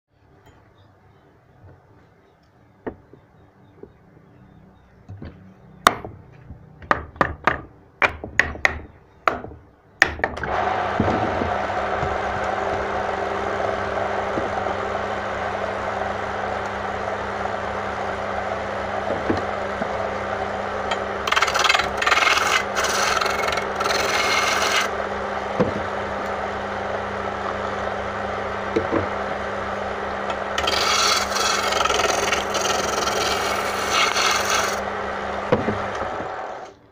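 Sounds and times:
turning tool scraping wood: 10.4 - 14.8, 20.9 - 24.9, 30.3 - 36.7
wood lathe running: 10.4 - 36.8.

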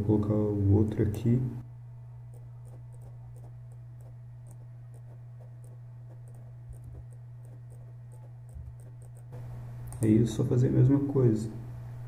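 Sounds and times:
low electrical hum: 0.0 - 12.0
computer mouse clicks: 2.3 - 9.3.

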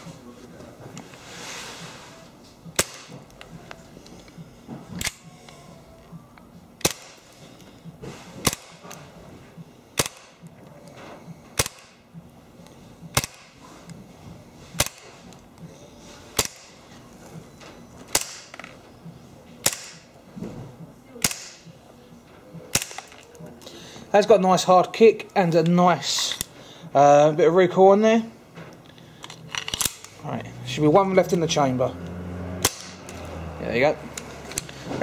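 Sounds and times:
bb pistol shots: 2.8 - 3.2, 6.8 - 7.2, 8.4 - 8.8, 10.0 - 10.4, 11.6 - 12.0, 13.1 - 13.5, 16.4 - 16.8, 19.6 - 20.1, 21.2 - 21.6, 22.7 - 23.1.

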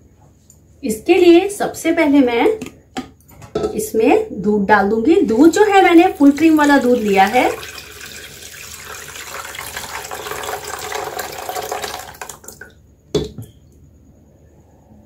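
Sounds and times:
milk pouring into pot: 6.0 - 12.7.

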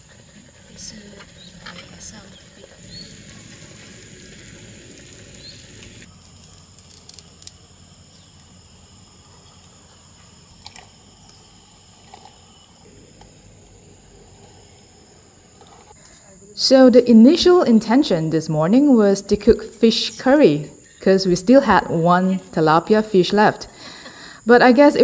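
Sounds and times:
high-pitched insect chorus: 0.0 - 25.0.

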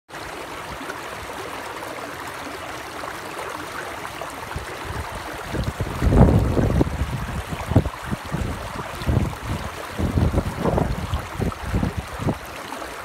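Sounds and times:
creek rushing over rocks: 0.1 - 13.0
wind buffeting microphone: 4.6 - 12.5.

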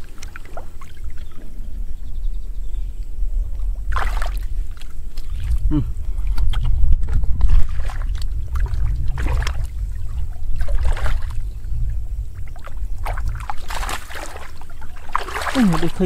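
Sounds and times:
low rumble: 0.0 - 16.0
hands splashing in muddy water: 3.9 - 5.6, 7.4 - 9.9, 10.6 - 11.4, 12.6 - 16.0.

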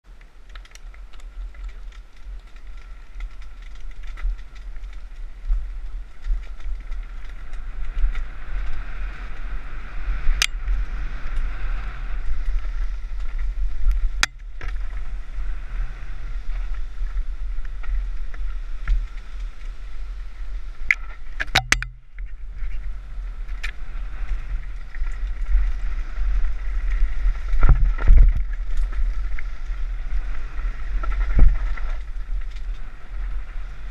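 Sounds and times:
wind rumble on microphone: 0.0 - 33.9
bike rattling and knocking: 0.6 - 9.5, 20.8 - 29.6.

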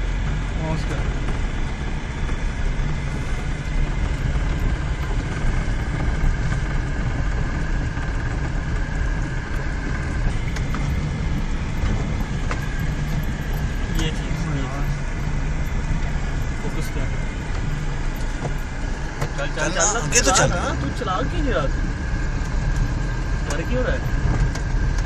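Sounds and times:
car engine and tyre rumble: 0.0 - 25.0
faint steady whine: 0.0 - 25.0.

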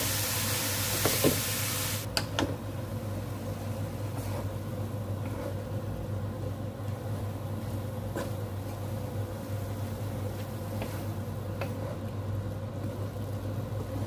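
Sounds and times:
low appliance hum: 0.0 - 14.0
wooden spatula stirring in a wok: 2.9 - 14.0.

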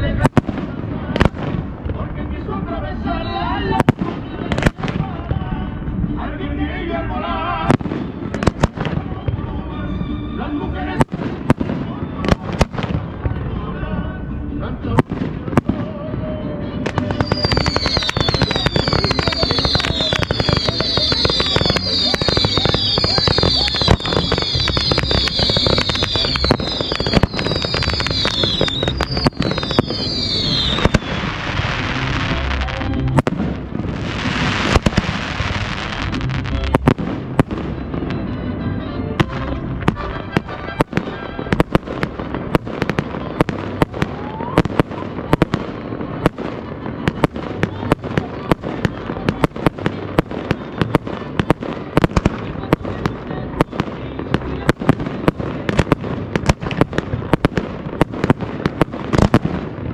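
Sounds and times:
fireworks crackling: 0.0 - 59.9
firework shells bursting: 16.9 - 32.2.

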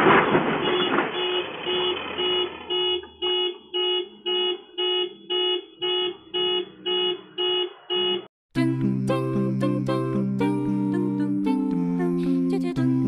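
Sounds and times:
car crash noise: 0.0 - 3.7
car alarm beeping: 0.6 - 8.3.

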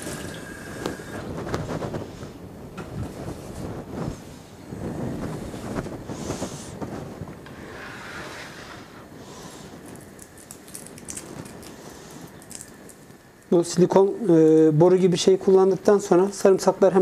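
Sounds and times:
dry garlic skins crackling: 9.1 - 14.7.

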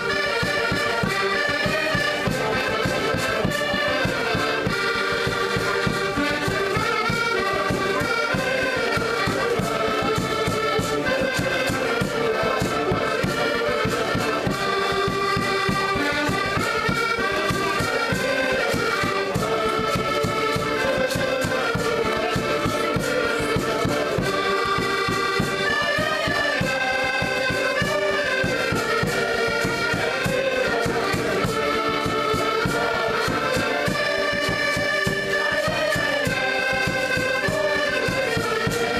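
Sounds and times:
accordions playing chords: 0.0 - 38.9.

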